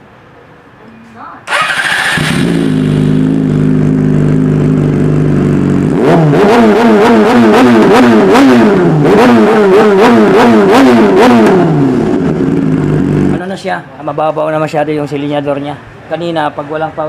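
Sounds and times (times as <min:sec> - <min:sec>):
motorcycle engine idling and revving: 0:01.5 - 0:13.6.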